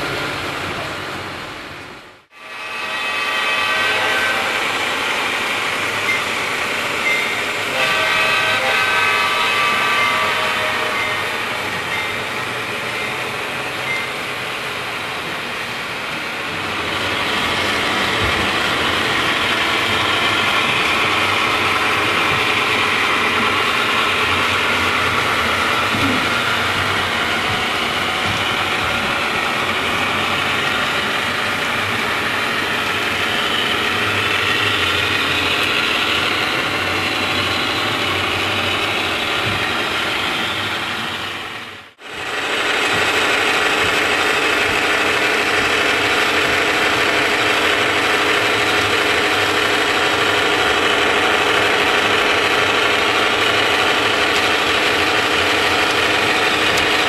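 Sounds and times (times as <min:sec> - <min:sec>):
model train running: 0:00.0 - 0:57.0.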